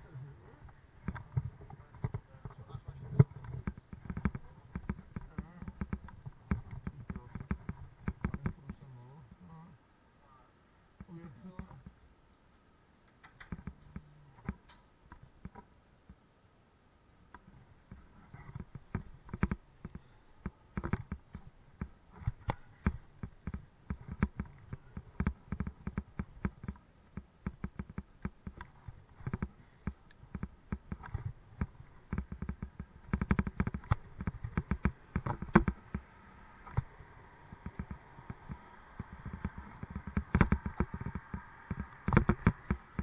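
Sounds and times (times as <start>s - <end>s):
bicycle clicking and rattling: 20.7s - 43.0s.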